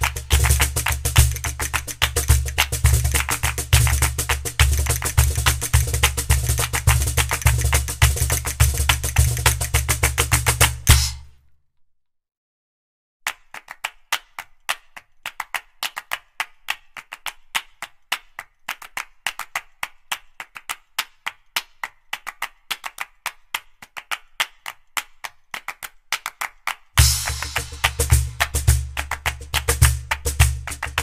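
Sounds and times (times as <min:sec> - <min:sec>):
music with heavy bass beat: 0:00.0 - 0:11.3, 0:27.0 - 0:31.0
clapping rhythm music: 0:00.0 - 0:11.4, 0:13.2 - 0:31.0.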